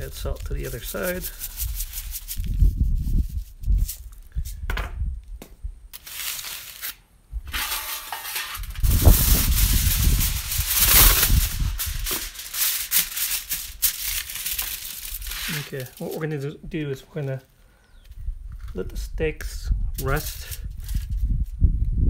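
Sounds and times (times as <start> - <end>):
aluminum foil crinkling: 0.0 - 4.6, 6.0 - 17.4, 20.0 - 21.3.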